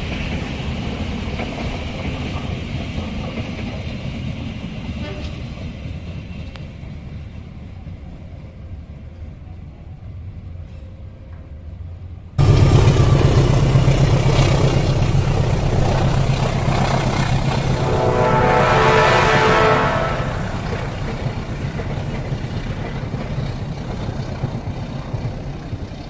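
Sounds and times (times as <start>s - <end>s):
train wheels on rails: 0.0s - 8.3s, 12.4s - 26.0s
train coaches rumbling on track: 0.0s - 26.0s
locomotive engine drone: 12.4s - 26.0s
steady tones: 15.2s - 21.9s.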